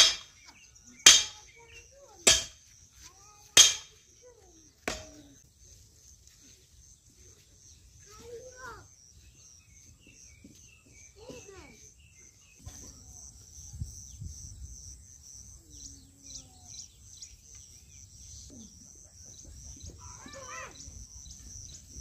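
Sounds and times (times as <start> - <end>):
low wind rumble on microphone: 13.2 - 15.1.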